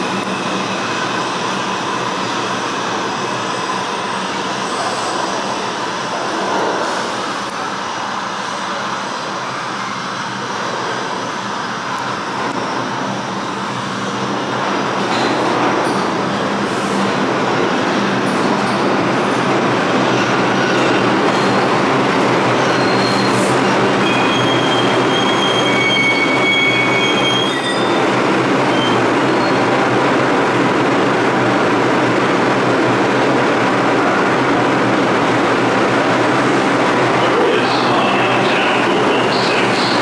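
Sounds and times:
subway train rumbling: 0.0s - 40.0s
high wheel squeals: 22.5s - 29.6s.

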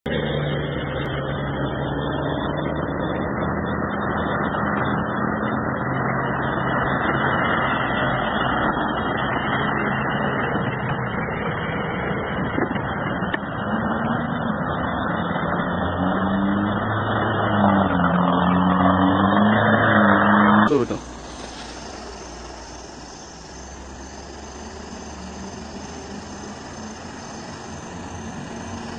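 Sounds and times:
heavy truck engine under load: 0.1s - 28.9s
water rushing: 20.5s - 28.9s.

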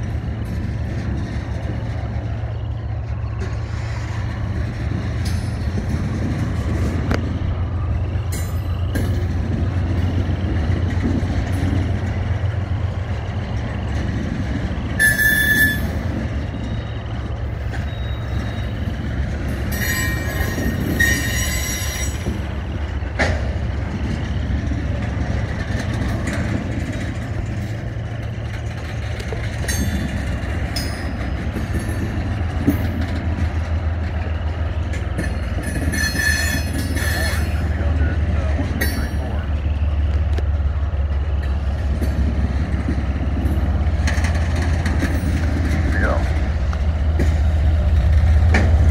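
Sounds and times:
train cars rumbling past: 0.0s - 48.9s
train wheels squealing: 0.3s - 28.3s, 29.3s - 40.1s.

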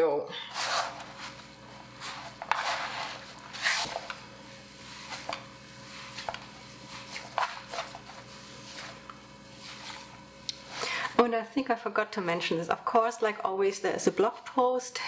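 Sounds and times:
hands kneading dough: 0.5s - 10.8s.

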